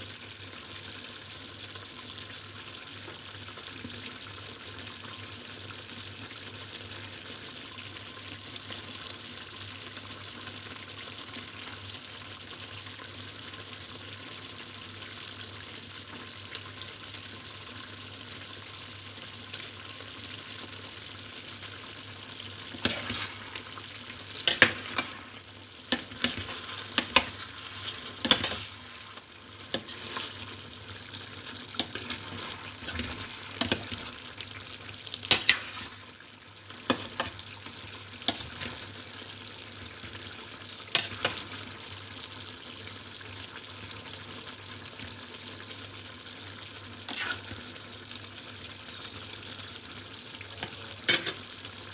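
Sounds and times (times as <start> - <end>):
stew bubbling in a pot: 0.1 - 51.9
metal ladle scraping a pot: 22.7 - 23.6, 25.9 - 30.5, 31.8 - 34.1, 47.1 - 47.6.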